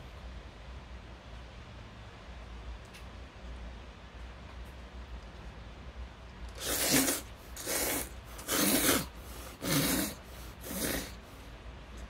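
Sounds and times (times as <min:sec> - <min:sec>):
person slurping noodles: 0:06.5 - 0:11.3.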